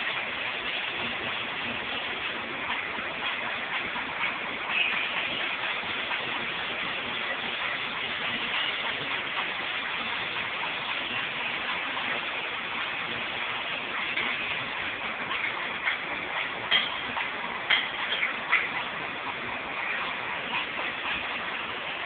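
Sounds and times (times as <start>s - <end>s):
welding arc crackling: 0.0s - 22.0s.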